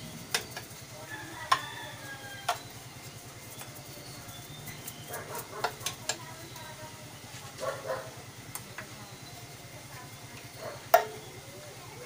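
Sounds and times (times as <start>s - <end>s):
paintbrush scrubbing: 0.0s - 5.8s.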